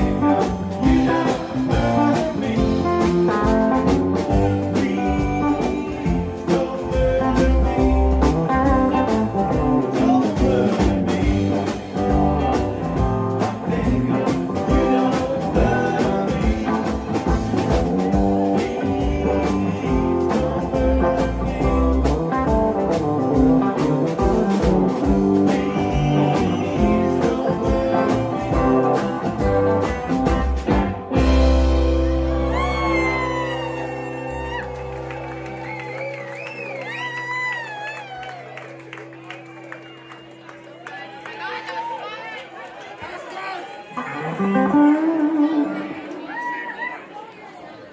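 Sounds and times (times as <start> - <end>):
live rock band with singing: 0.0 - 40.4, 43.8 - 46.2.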